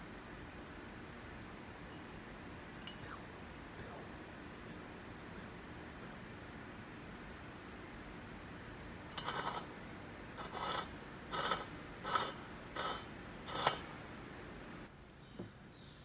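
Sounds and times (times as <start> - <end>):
steel scribe scratching pipe: 9.2 - 9.7, 10.4 - 13.8.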